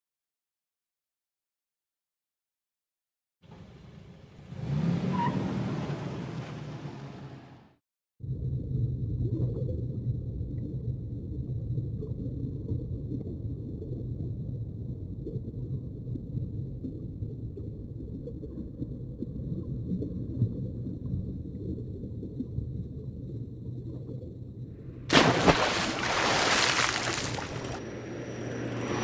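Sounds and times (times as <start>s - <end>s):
low rumble of moving water: 8.2s - 29.0s.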